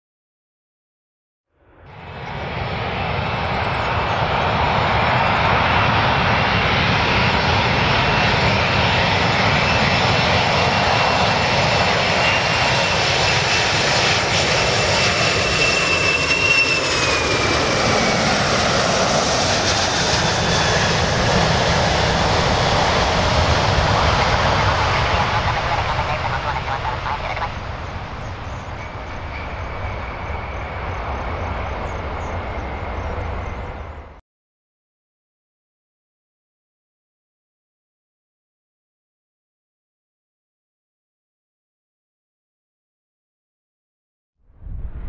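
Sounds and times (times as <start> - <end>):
jet engines rushing and whining: 1.7 - 34.2.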